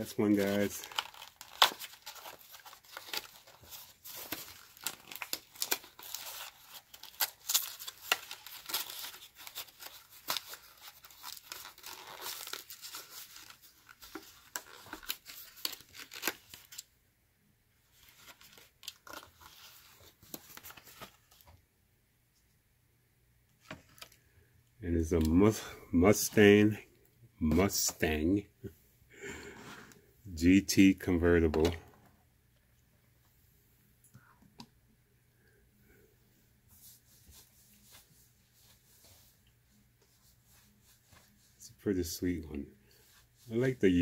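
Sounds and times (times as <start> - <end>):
packaging tearing and crinkling: 0.1 - 16.8.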